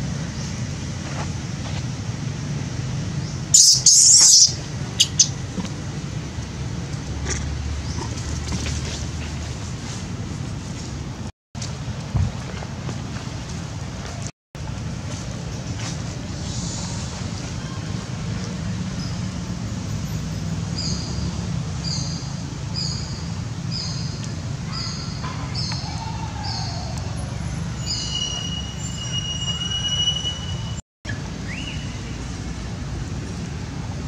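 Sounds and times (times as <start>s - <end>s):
short high chirping call: 3.6s - 5.4s, 27.8s - 30.8s
wind rumble on microphone: 4.6s - 19.8s.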